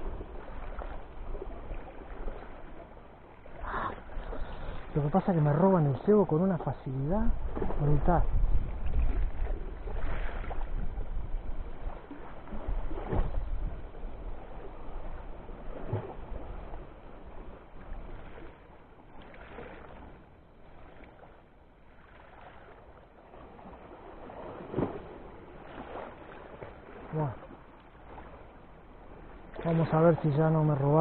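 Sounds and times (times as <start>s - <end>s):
wind rumbling on microphone: 0.0s - 20.2s.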